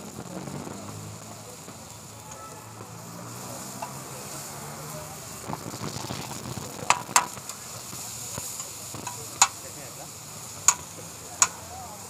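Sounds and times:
fish sizzling in oil: 0.0 - 12.0
sharp clicks: 10.6 - 11.6.

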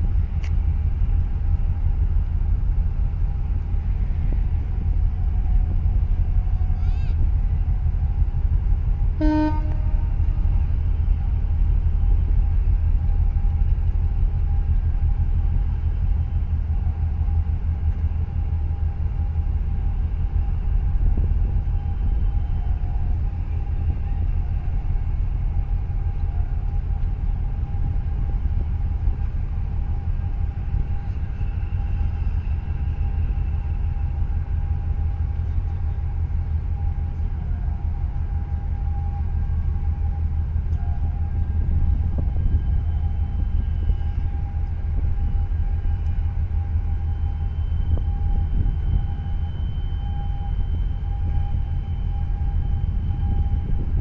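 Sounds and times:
deep ship engine rumble: 0.0 - 54.0
short horn toot: 9.2 - 10.0.

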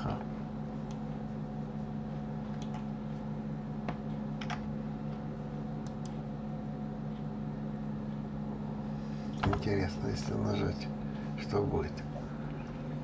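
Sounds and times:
low electrical hum: 0.0 - 13.0
computer mouse clicks: 2.5 - 2.9, 5.8 - 6.2.

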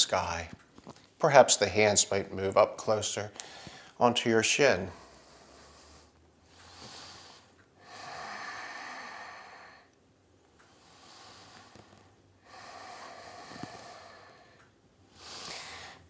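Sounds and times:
man breathing deeply: 3.4 - 4.0, 4.9 - 10.0, 10.6 - 16.0.

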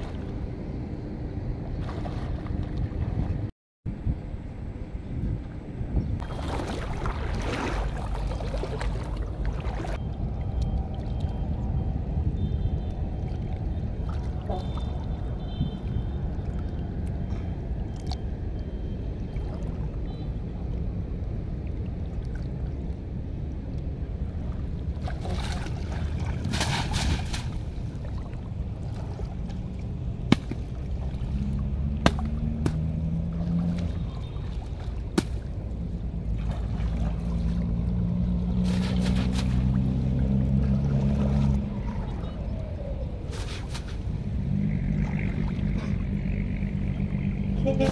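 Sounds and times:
shallow water sloshing: 1.7 - 3.4, 6.2 - 10.0, 24.3 - 46.4
low droning tone: 44.1 - 47.9.

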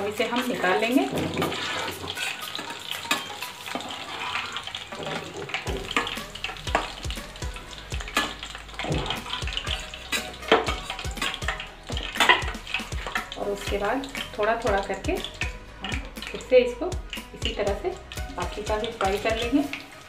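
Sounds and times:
oil sizzling and bubbling: 0.0 - 20.0
metal spatula clinking on pan: 1.4 - 3.9, 8.0 - 13.3.

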